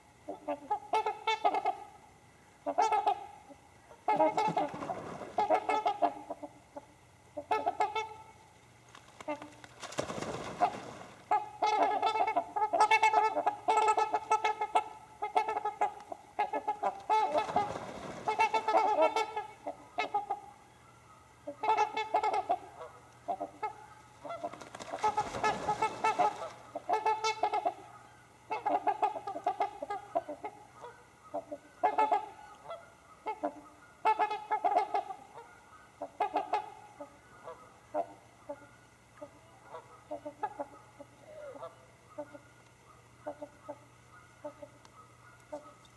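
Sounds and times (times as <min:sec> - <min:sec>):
swans honking: 0:00.0 - 0:08.4, 0:10.4 - 0:45.9
splashing and wing-flapping: 0:04.1 - 0:06.1, 0:08.8 - 0:12.4, 0:16.8 - 0:19.6, 0:23.6 - 0:27.8.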